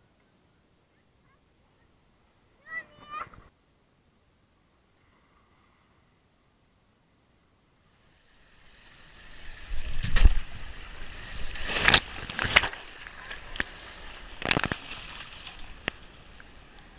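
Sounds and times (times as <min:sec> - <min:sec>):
water rushing along slide: 0:08.1 - 0:16.9
loud water splashes: 0:08.8 - 0:16.4.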